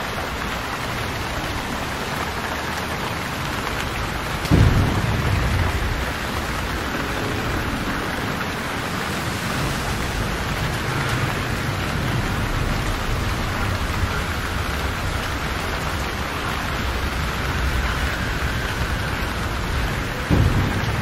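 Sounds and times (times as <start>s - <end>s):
choppy sea water: 0.0s - 21.0s
wind rumbling on microphone: 0.0s - 21.0s
wind rushing: 4.5s - 14.0s.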